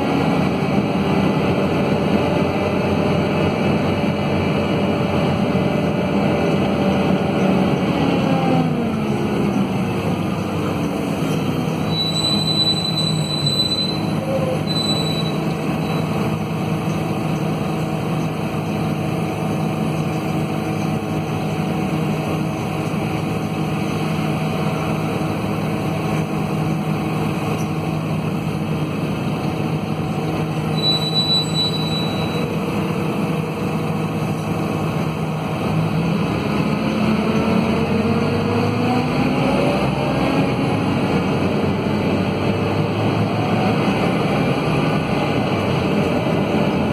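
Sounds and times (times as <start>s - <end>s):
bus diesel engine running: 0.0s - 46.9s
brief high whistles: 11.9s - 16.0s, 30.7s - 32.5s.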